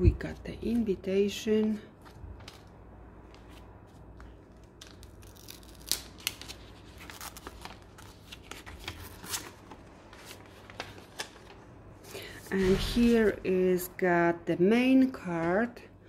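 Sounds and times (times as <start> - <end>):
stiff paper rustling and crackling: 2.0 - 11.7.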